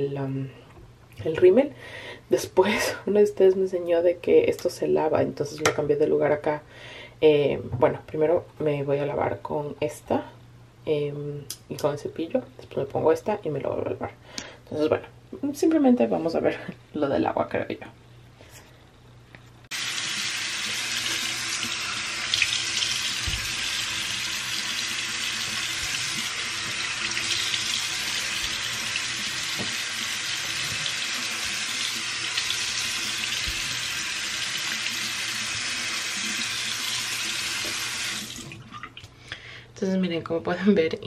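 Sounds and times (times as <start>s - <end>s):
tap water splashing into basin: 20.1s - 23.7s, 25.4s - 30.0s.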